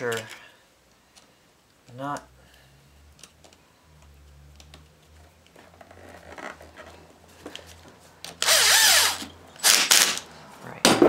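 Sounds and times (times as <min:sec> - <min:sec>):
cordless drill whining: 0:08.4 - 0:10.2.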